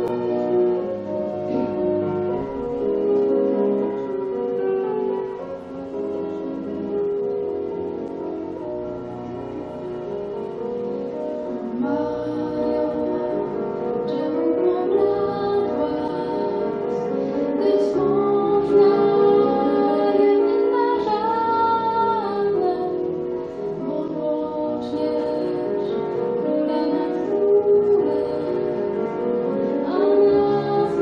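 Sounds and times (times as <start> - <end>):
piano accompaniment: 0.0 - 31.0
woman singing: 11.8 - 23.1, 23.8 - 28.8, 29.7 - 31.0.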